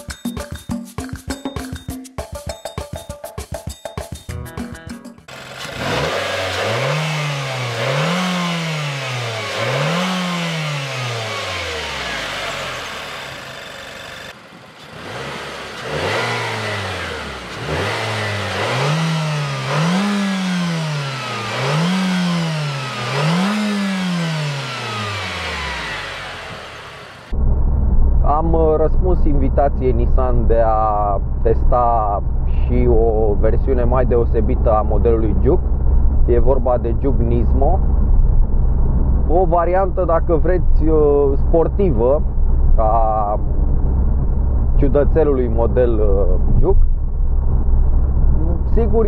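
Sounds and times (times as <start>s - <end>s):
car engine revving: 5.3s - 27.6s.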